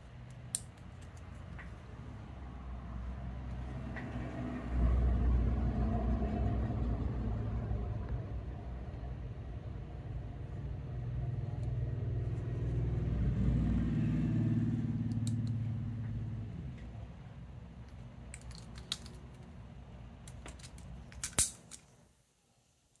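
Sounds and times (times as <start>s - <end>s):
knife handles and latch clicking: 0.3s - 1.7s, 17.9s - 19.5s, 20.2s - 22.0s
low rumbling hum: 1.8s - 21.1s.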